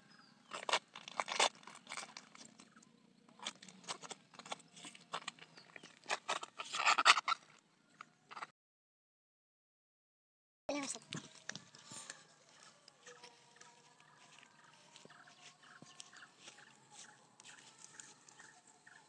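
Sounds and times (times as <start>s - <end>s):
banana trunk fibres tearing: 0.5s - 2.5s.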